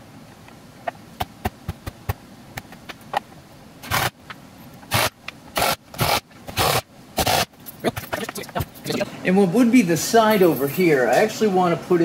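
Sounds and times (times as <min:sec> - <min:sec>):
cordless drill-driver bursts: 0:04.9 - 0:07.5.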